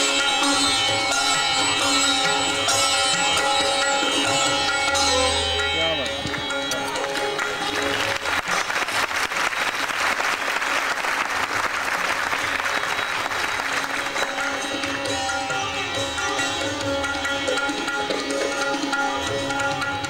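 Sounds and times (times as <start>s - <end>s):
sitar playing: 0.0s - 8.9s, 12.2s - 20.0s
audience applauding: 6.2s - 15.2s.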